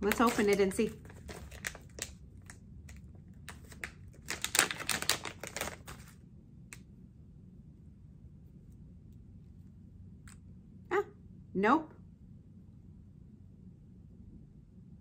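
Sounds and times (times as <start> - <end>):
packaging clicking and crinkling: 0.0 - 6.2.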